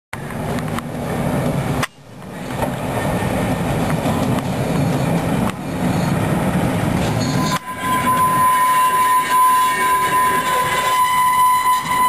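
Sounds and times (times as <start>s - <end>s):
tram rumbling on rails: 0.1s - 12.0s
sharp clicks of tram: 0.2s - 6.3s.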